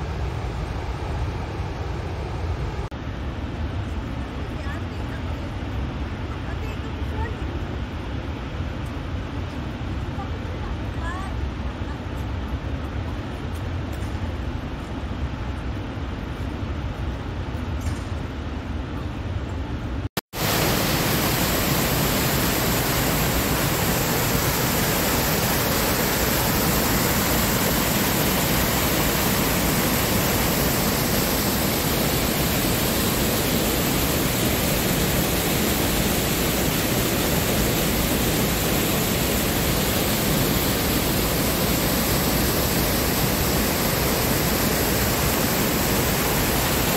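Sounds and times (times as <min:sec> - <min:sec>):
distant waterfall rumble: 0:00.0 - 0:19.1, 0:20.4 - 0:46.9
cascading water rushing: 0:20.4 - 0:46.9.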